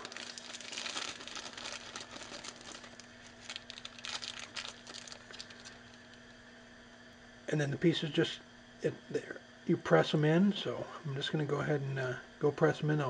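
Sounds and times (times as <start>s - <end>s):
plastic bag crinkling: 0.0s - 6.2s
faint steady hum: 0.0s - 13.0s.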